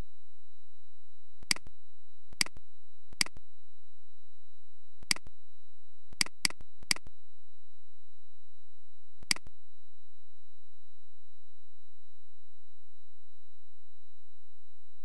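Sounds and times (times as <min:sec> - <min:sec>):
computer mouse clicks: 0:06.2 - 0:07.1, 0:09.3 - 0:09.5.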